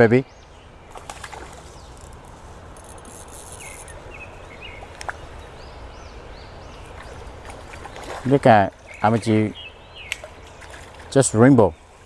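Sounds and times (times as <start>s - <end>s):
bird chirps: 2.8s - 7.2s.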